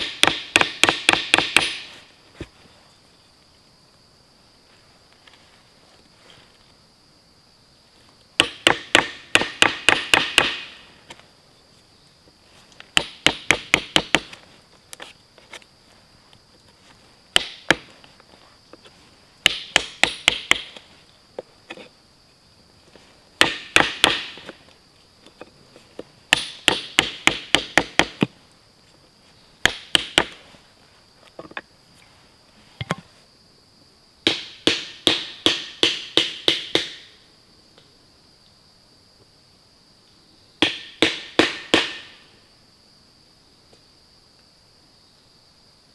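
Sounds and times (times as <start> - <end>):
high insect buzz: 0.0 - 45.9
chisel knocking into wood: 13.0 - 14.4.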